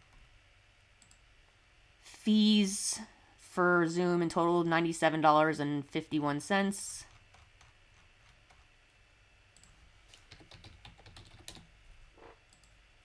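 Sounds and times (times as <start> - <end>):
keyboard typing: 9.6 - 12.8.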